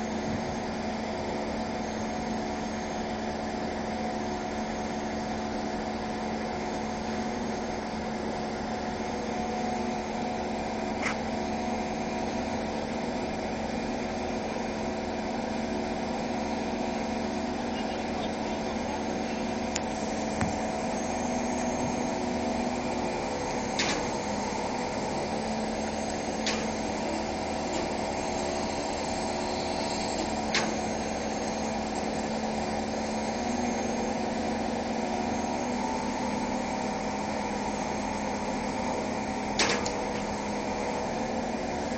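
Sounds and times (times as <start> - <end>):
machinery humming: 0.0 - 41.9.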